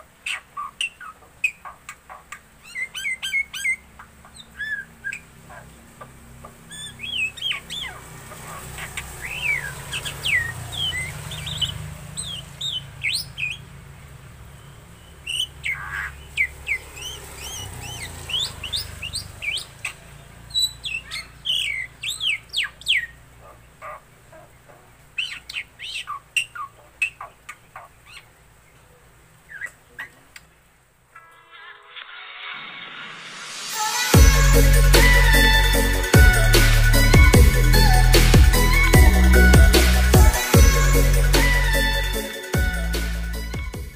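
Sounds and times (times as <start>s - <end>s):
bird whistling song: 2.6s - 5.6s, 6.6s - 13.7s, 14.6s - 23.2s, 29.5s - 30.2s.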